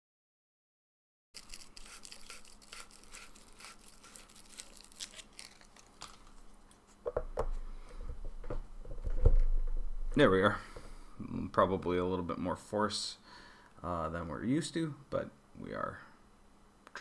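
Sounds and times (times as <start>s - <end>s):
plastic parts clicking and crinkling: 1.4s - 6.9s
plastic tube knocking and creaking: 7.0s - 9.9s.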